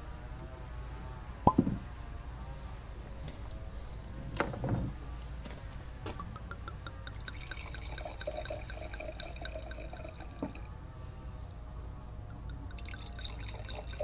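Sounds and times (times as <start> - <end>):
wine glugging into a glass: 6.8 - 10.6, 12.5 - 14.0.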